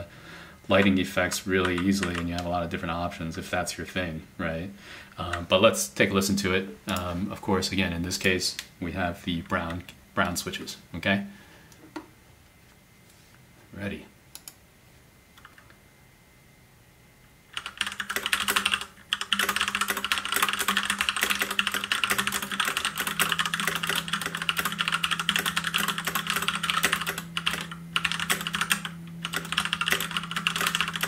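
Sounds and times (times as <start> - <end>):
mechanical keyboard typing: 0.8 - 2.4, 17.5 - 31.0.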